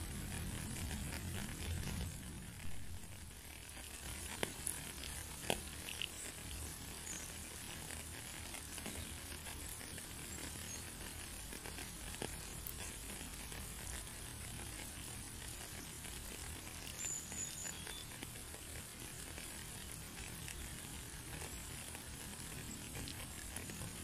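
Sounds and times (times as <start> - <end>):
low steady rumble: 0.0 - 24.0
steady rain hissing: 0.0 - 24.0.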